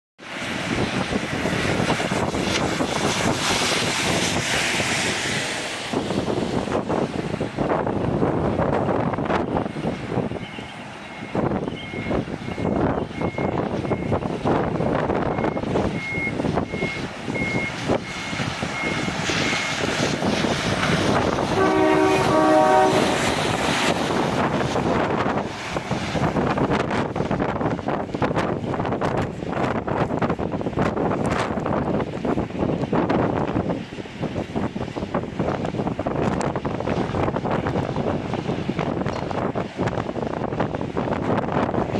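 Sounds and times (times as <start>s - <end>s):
truck engines running: 0.2s - 41.9s
wind buffeting microphone: 0.2s - 41.9s
high electronic warning beep: 10.5s - 14.2s, 15.3s - 19.7s
multi-tone air horn blasts: 21.5s - 23.4s.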